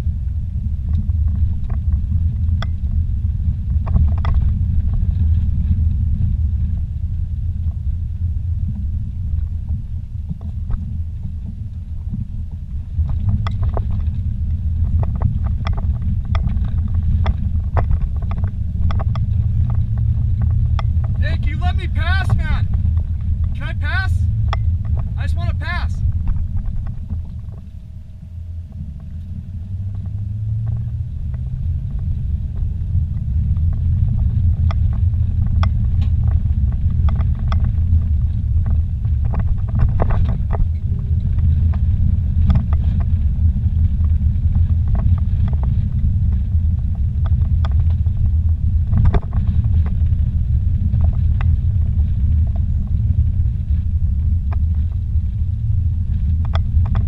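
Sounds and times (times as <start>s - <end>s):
vehicle rumbling on dirt road: 0.0s - 57.0s.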